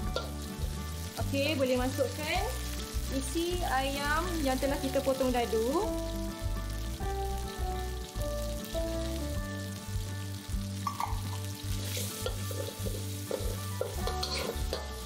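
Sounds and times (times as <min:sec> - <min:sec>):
chicken sizzling in a wok: 0:00.0 - 0:15.0
metal spatula scraping a wok: 0:11.8 - 0:15.0.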